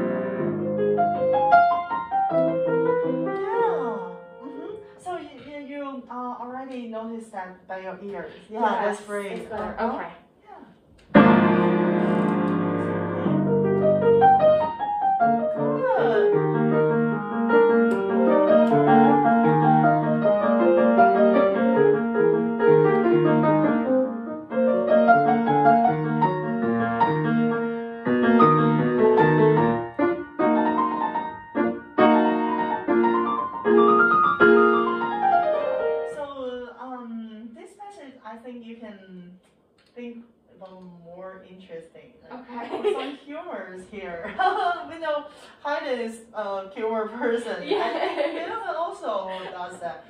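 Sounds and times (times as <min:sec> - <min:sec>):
grand piano playing: 0:00.0 - 0:05.1, 0:11.1 - 0:36.4.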